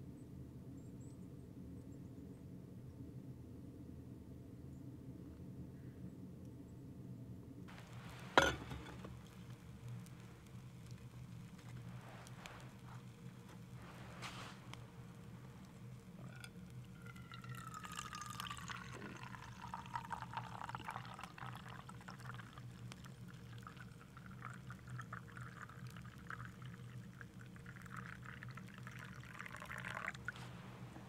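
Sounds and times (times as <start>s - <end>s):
liquid pouring into a mug: 7.7s - 31.0s.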